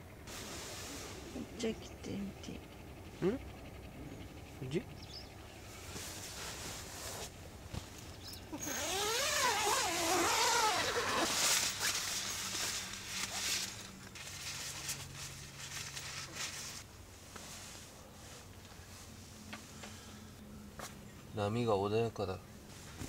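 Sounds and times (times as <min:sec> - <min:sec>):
tent zip being pulled: 0:08.6 - 0:16.8
fabric rustling: 0:08.7 - 0:19.3.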